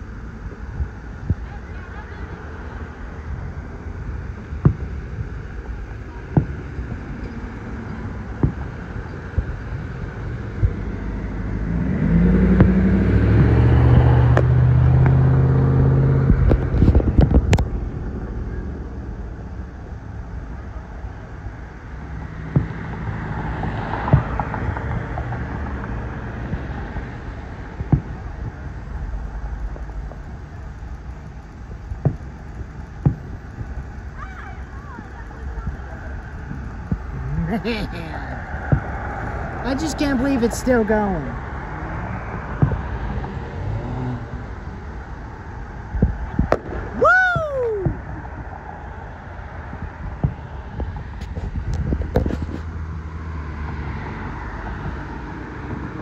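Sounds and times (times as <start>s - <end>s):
distant fireworks banging: 0.0s - 56.0s
car passing by: 10.5s - 17.1s, 22.3s - 27.9s, 37.6s - 44.5s, 48.4s - 56.0s.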